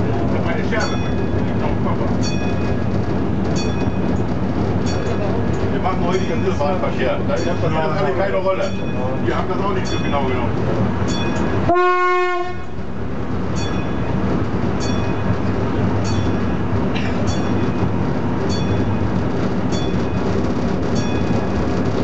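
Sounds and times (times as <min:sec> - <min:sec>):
rail joint clicks: 0:00.0 - 0:22.0
railcar engine and wheels drone: 0:00.0 - 0:22.0
railcar horn blast: 0:11.7 - 0:12.8.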